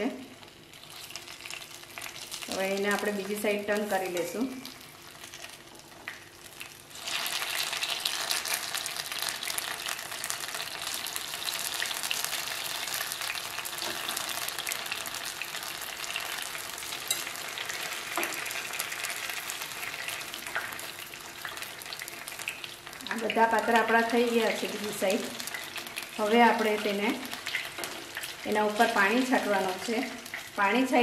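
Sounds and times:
rolls sizzling in oil: 0:00.0 - 0:31.0.

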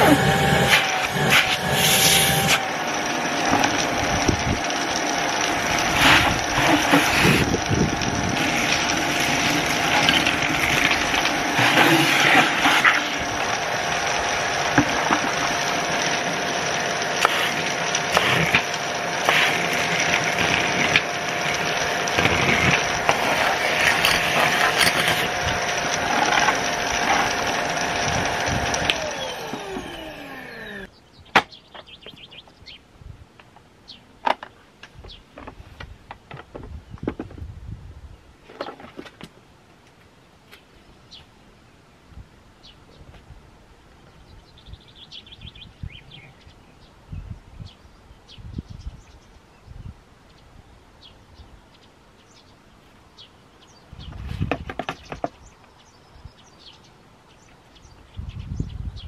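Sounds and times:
vacuum cleaner motor whine: 0:00.0 - 0:30.9.

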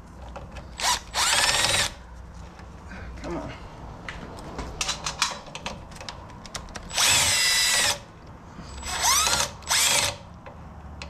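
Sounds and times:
power tool motor whining: 0:00.8 - 0:02.0, 0:06.9 - 0:08.0, 0:08.7 - 0:10.2.

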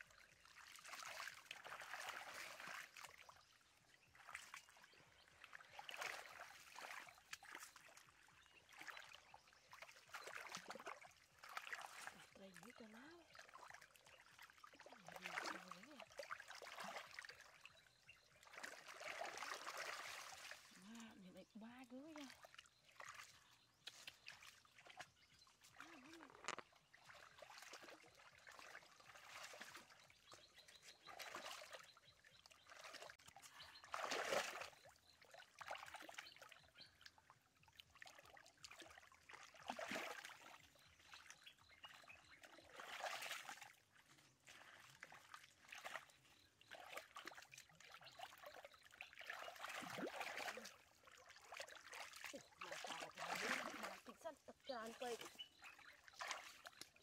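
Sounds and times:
stream water trickling: 0:00.0 - 0:57.0
hands splashing in water: 0:18.4 - 0:21.1, 0:32.7 - 0:34.9, 0:49.1 - 0:50.8, 0:51.5 - 0:54.2.

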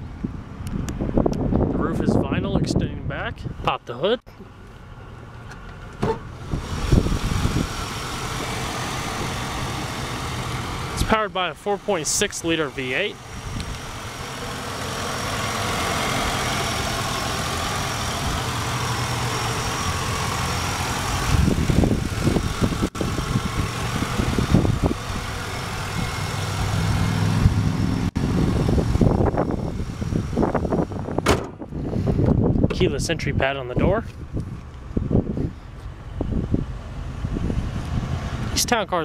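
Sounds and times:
wind buffeting microphone: 0:00.0 - 0:03.6, 0:06.3 - 0:10.8, 0:13.2 - 0:14.2, 0:21.1 - 0:38.6
engine idling: 0:04.3 - 0:33.0
high whine: 0:06.0 - 0:31.3.

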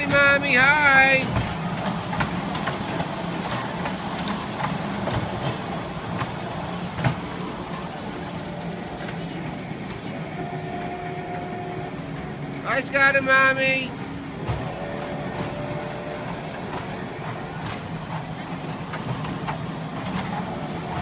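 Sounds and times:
miniature train rolling on track: 0:00.0 - 0:21.0.

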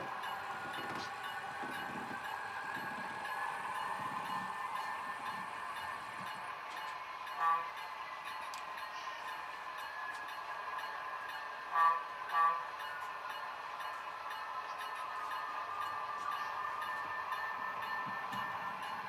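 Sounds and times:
model train horn toots: 0:07.4 - 0:07.7, 0:11.7 - 0:12.7.

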